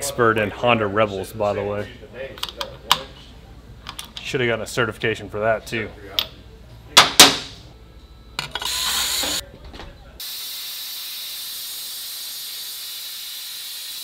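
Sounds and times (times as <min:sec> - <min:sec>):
steady hiss: 0:10.2 - 0:14.0.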